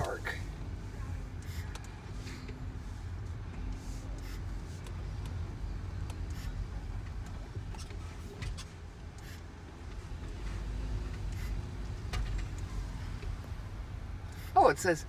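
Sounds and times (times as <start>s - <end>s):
car engine and tyre drone: 0.0s - 15.0s.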